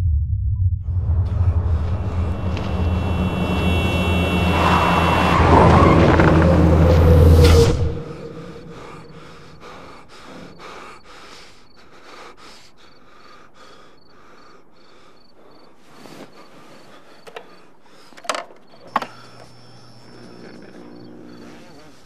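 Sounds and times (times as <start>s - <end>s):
man breathing fast and hard: 8.0s - 18.3s.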